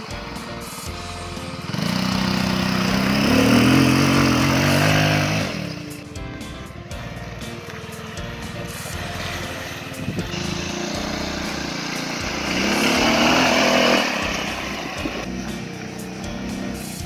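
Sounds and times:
buggy engine running: 0:00.0 - 0:17.0.

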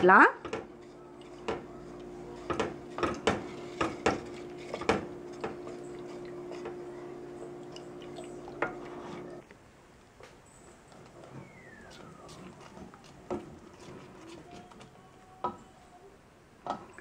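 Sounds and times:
steady low hum: 0:00.0 - 0:09.4
wooden spatula scraping pot: 0:00.0 - 0:09.4, 0:11.0 - 0:14.9.

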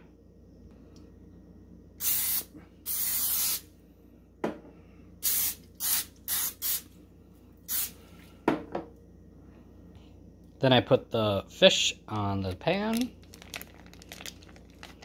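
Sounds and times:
aerosol spray hissing: 0:02.0 - 0:03.6, 0:05.2 - 0:06.8, 0:07.7 - 0:08.0.

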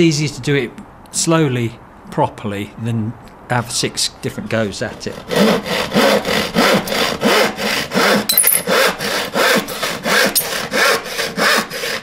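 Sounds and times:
hand saw cutting wood: 0:04.8 - 0:12.0.

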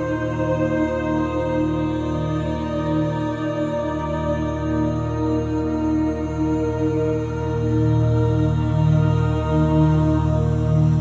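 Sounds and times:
background music of held chords: 0:00.0 - 0:11.0.

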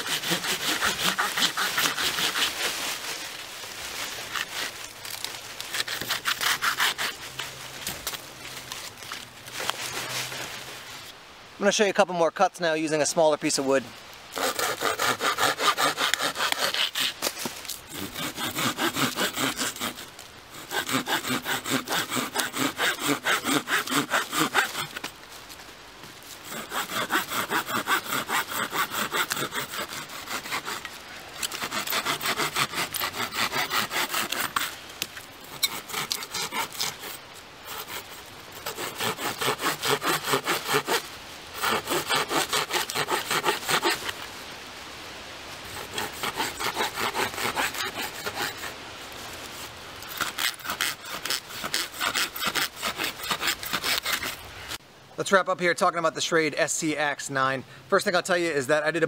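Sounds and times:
saw cutting through log: 0:00.0 - 0:03.4, 0:04.3 - 0:08.2, 0:14.3 - 0:25.1, 0:26.2 - 0:34.8, 0:35.4 - 0:44.2, 0:45.7 - 0:48.8, 0:49.5 - 0:54.8.

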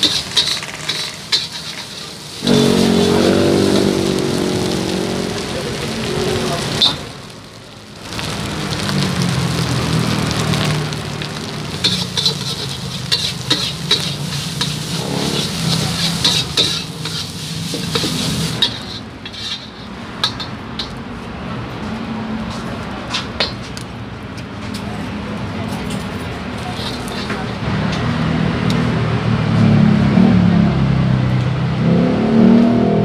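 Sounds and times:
metal spatula scraping a pan: 0:00.0 - 0:04.0, 0:11.7 - 0:21.0, 0:26.6 - 0:27.6
rice sizzling in a wok: 0:00.0 - 0:21.0, 0:26.6 - 0:27.9.

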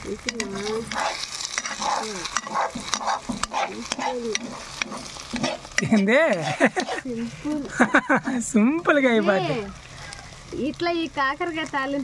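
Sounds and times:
light sizzle: 0:00.0 - 0:12.0
metal spatula clinking on pan: 0:00.2 - 0:00.8, 0:01.6 - 0:06.9.

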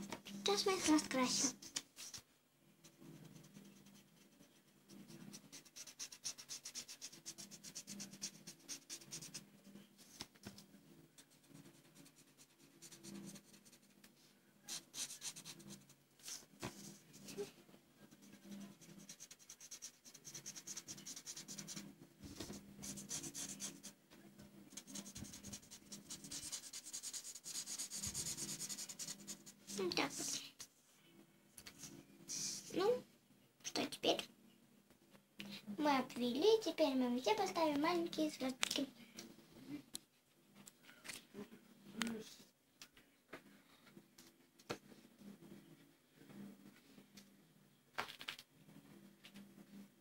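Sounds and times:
marker scratching on paper: 0:00.5 - 0:02.2, 0:02.8 - 0:10.4, 0:11.2 - 0:14.0, 0:14.7 - 0:17.5, 0:18.2 - 0:24.0, 0:24.7 - 0:30.4.

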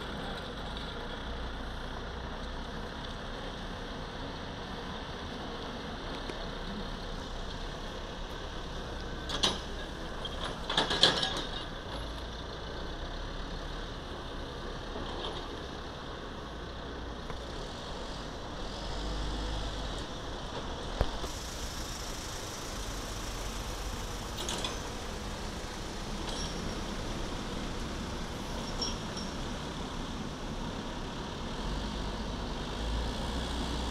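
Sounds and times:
diesel engines running: 0:00.0 - 0:33.9
metal clanks and knocks: 0:09.3 - 0:12.1.

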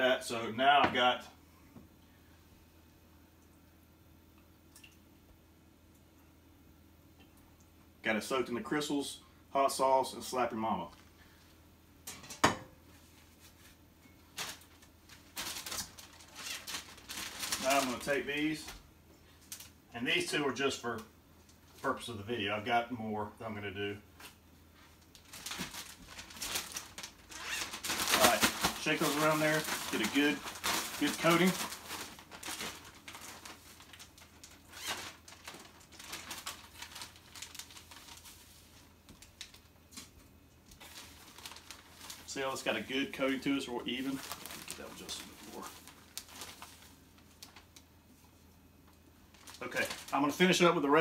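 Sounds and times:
plastic bag crinkling: 0:14.2 - 0:18.7, 0:24.8 - 0:47.9, 0:49.2 - 0:51.0.

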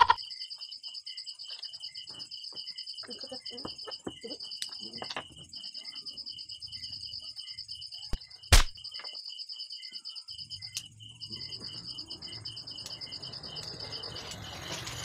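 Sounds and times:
crickets chirping: 0:00.0 - 0:15.0
rustle of stems and leaves: 0:13.8 - 0:15.0.

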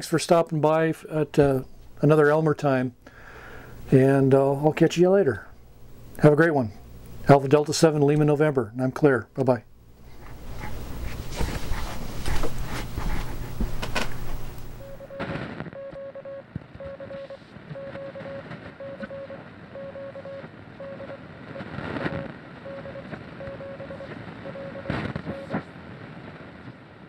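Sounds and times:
morse code tone: 0:14.8 - 0:21.2, 0:22.1 - 0:25.6.

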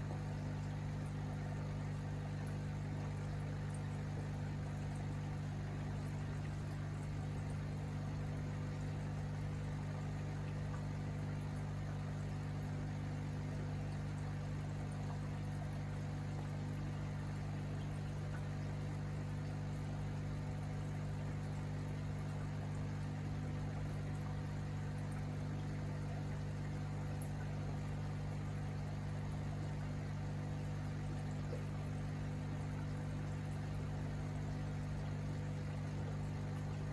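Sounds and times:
aquarium pump hum: 0:00.0 - 0:36.9
water bubbling and trickling: 0:00.0 - 0:36.9.

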